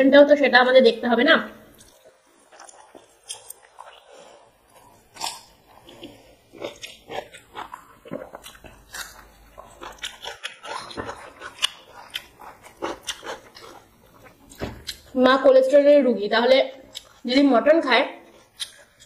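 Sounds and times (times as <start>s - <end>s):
wet chewing and lip smacks: 1.8s - 15.1s, 16.9s - 17.2s, 18.3s - 19.0s
fingers working rice on paper plates: 4.1s - 15.1s.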